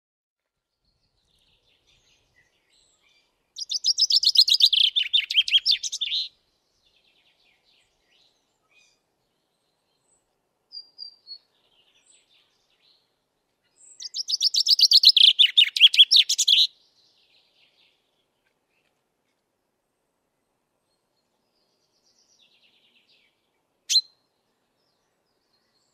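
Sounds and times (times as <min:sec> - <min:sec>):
chaffinch singing: 0:01.1 - 0:09.0, 0:13.8 - 0:18.0, 0:21.0 - 0:25.9.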